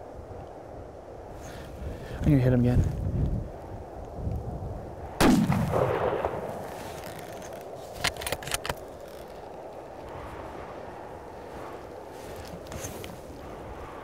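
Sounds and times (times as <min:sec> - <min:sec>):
rifle shot: 0:05.2 - 0:06.8
rifle bolt clicks: 0:07.0 - 0:09.4.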